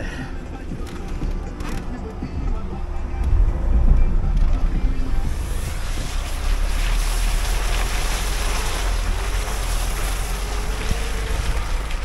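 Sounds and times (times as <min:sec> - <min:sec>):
car engine revving: 0:00.3 - 0:12.0
wind rumble on microphone: 0:02.4 - 0:12.0
wheels spinning in snow: 0:04.2 - 0:12.0.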